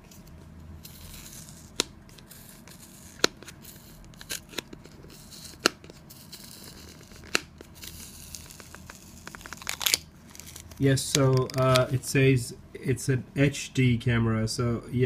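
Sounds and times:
paper seal scratching and tearing: 0.8 - 11.8.

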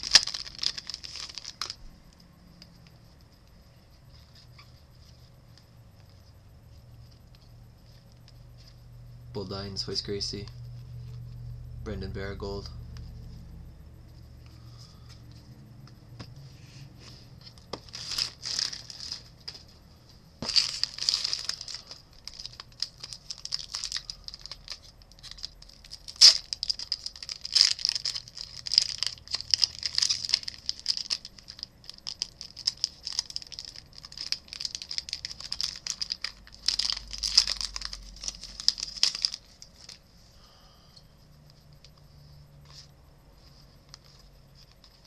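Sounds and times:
foil wrapper crinkling and tearing: 0.0 - 1.8, 17.4 - 19.7, 20.4 - 40.6
sharp crack of foil: 0.0 - 1.8, 20.5 - 40.0.

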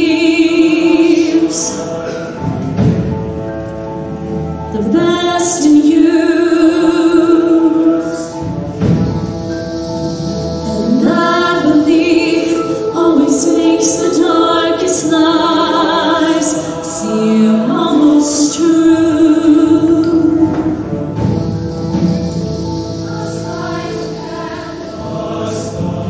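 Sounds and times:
choir singing in harmony: 0.0 - 26.0.

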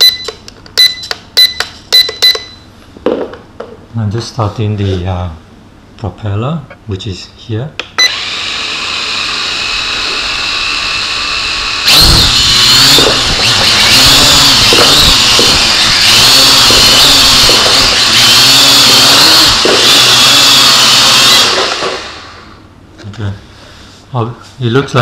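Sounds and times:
quadcopter propellers whirring: 8.1 - 22.4.

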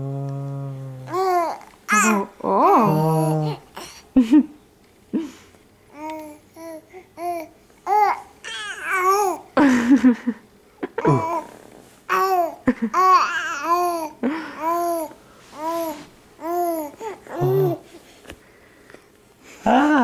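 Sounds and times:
baby cooing and babbling: 1.0 - 4.0, 5.9 - 9.5, 11.1 - 11.5, 12.1 - 17.9.

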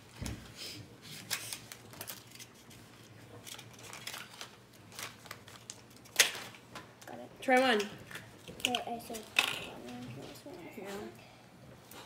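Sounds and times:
plastic packaging rustling: 1.1 - 7.0, 8.1 - 10.4.

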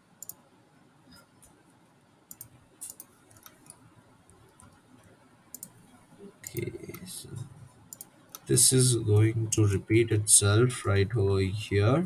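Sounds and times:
computer mouse clicks: 0.2 - 0.4, 2.3 - 7.1, 7.9 - 8.5.

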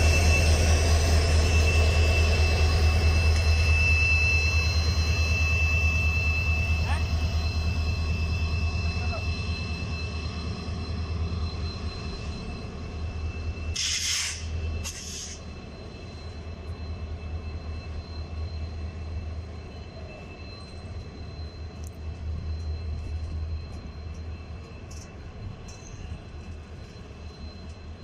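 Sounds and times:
train coaches rumbling on track: 0.0 - 28.0
short hisses: 13.8 - 15.4.

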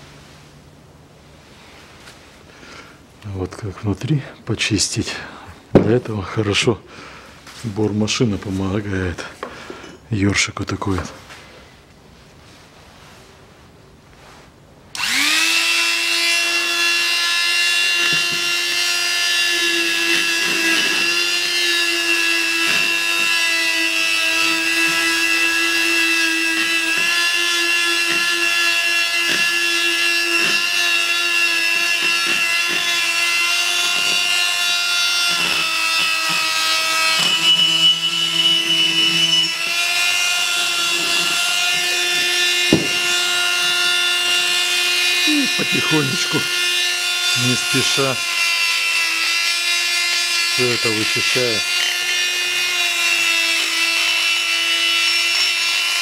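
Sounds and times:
rotary tool brush whining: 14.2 - 56.0.

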